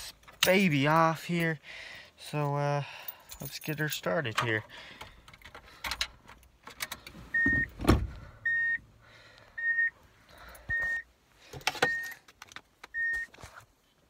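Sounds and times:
car warning chime beeping: 0:07.3 - 0:07.8, 0:08.4 - 0:08.9, 0:09.6 - 0:10.0, 0:10.7 - 0:11.1, 0:11.8 - 0:12.2, 0:12.9 - 0:13.3.

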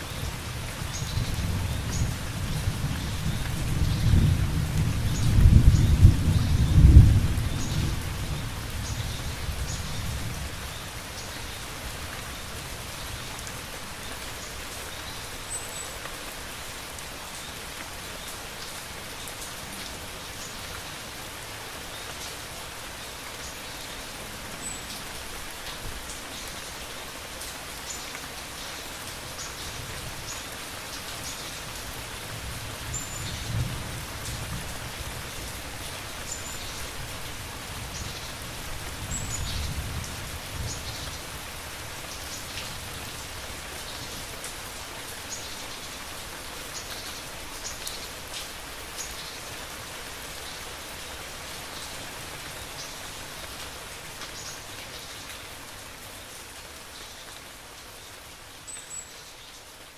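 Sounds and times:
steady rain falling: 0:00.0 - 0:59.9
low rolls of thunder: 0:03.6 - 0:08.4.

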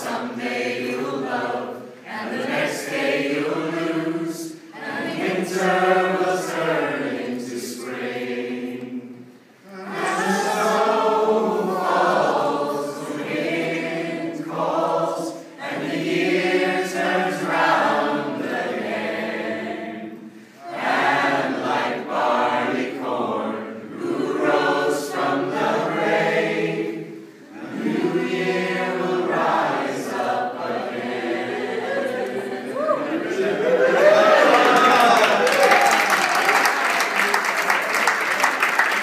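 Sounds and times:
choir singing: 0:00.0 - 0:35.3.

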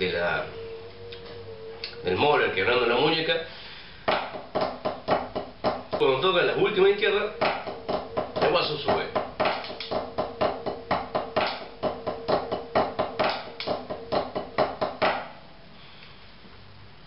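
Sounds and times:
drumsticks on practice pad: 0:07.3 - 0:15.4.

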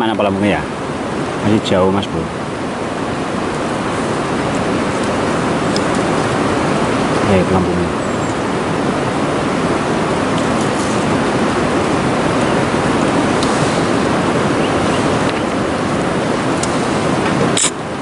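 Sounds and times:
river water flowing: 0:00.0 - 0:18.0
sharp click: 0:17.6 - 0:17.8.

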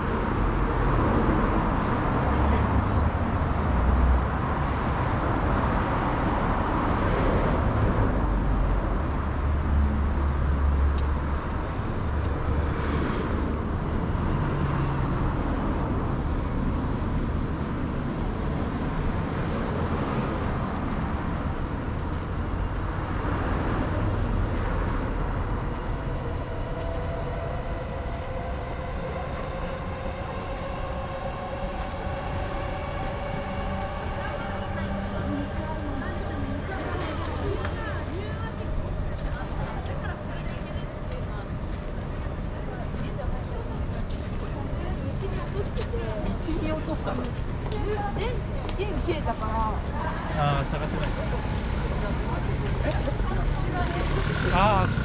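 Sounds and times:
traffic rumble: 0:00.0 - 0:55.0.

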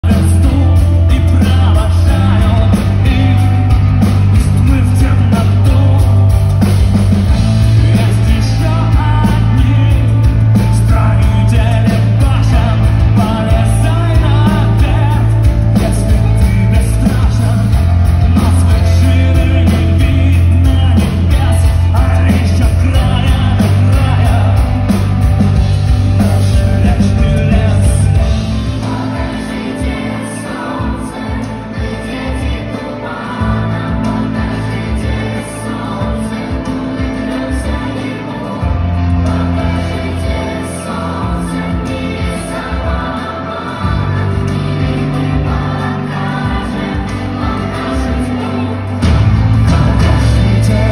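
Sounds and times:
man singing: 0:00.0 - 0:45.4, 0:46.5 - 0:50.9
bass guitar: 0:00.0 - 0:50.9
drums: 0:00.0 - 0:50.9
electric guitar: 0:00.0 - 0:50.9.

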